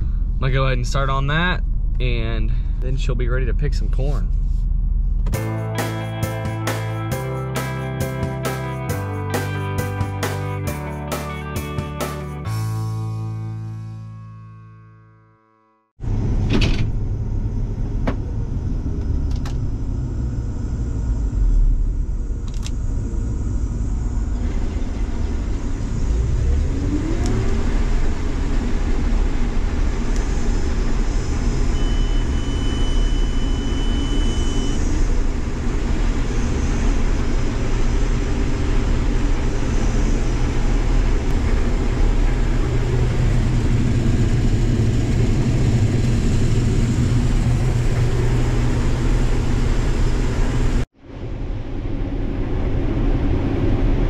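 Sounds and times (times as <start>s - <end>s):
combine harvester engine and threshing: 16.0s - 54.0s.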